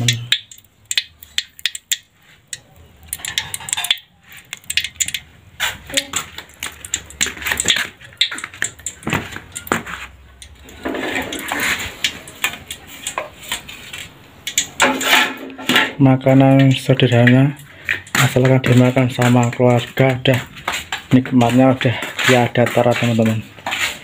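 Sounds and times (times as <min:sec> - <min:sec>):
food frying in hot oil: 0:00.0 - 0:15.2
metal utensil clinking on pan: 0:03.0 - 0:23.4.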